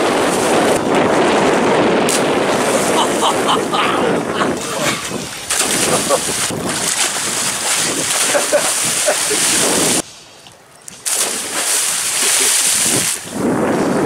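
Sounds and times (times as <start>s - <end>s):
wind noise on microphone: 0.0s - 14.0s
people splashing into water: 2.0s - 10.0s, 11.0s - 13.4s.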